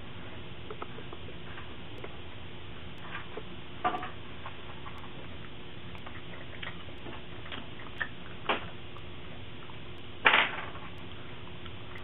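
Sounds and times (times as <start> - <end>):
rattle inside computer case: 10.2 - 10.8.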